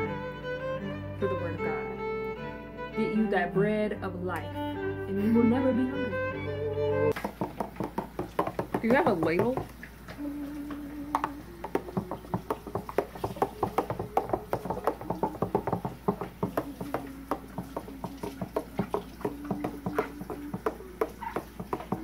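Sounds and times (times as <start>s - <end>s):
spoon stirring in plastic pitcher: 7.1s - 22.0s.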